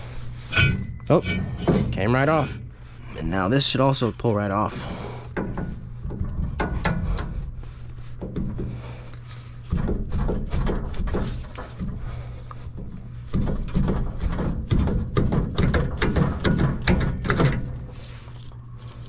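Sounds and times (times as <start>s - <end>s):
metal clunks and rattling: 0.0s - 3.0s, 5.2s - 18.1s
metal scraping: 0.0s - 7.6s.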